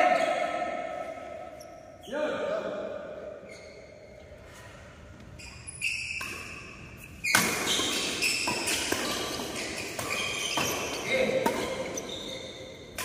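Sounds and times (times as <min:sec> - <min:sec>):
shoes squeaking on court: 0:03.4 - 0:13.0
racket striking shuttlecock: 0:06.1 - 0:12.0.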